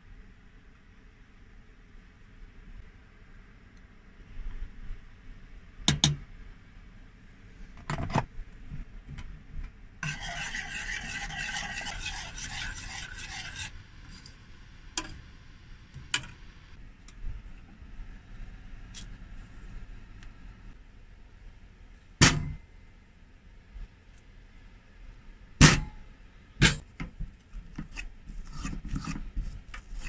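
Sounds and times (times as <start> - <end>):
spoon stirring in saucepan: 10.0 - 14.4.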